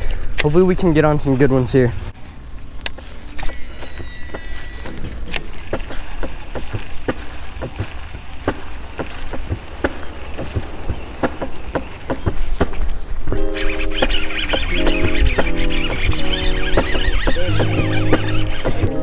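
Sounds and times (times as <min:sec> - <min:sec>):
fishing reel spool whine: 0:03.3 - 0:12.2, 0:13.5 - 0:19.0
reel ticking while cranked: 0:03.4 - 0:19.0
reel sharp click: 0:13.4 - 0:19.0.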